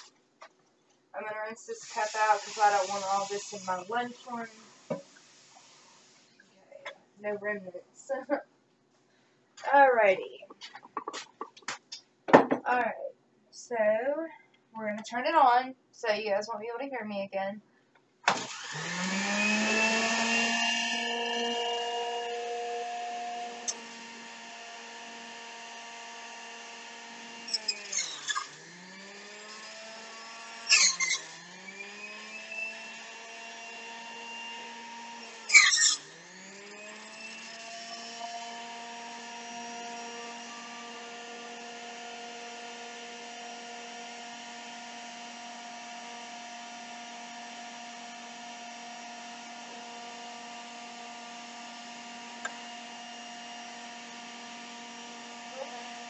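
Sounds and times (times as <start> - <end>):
juicer motor humming: 18.3 - 56.0.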